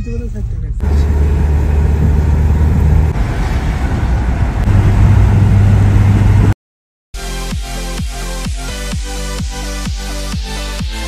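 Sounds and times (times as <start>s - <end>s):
vehicle road and engine noise: 0.0s - 6.6s.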